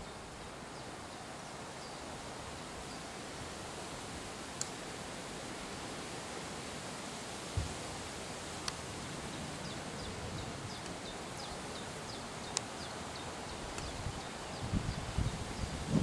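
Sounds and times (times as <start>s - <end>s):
outdoor background hiss: 0.0s - 16.0s
faint clicks: 4.6s - 4.8s, 8.6s - 8.8s, 13.7s - 14.0s.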